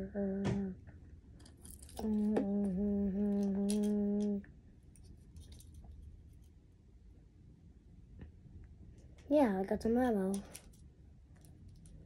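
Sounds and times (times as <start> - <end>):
child humming: 0.0 - 0.8, 2.0 - 4.5.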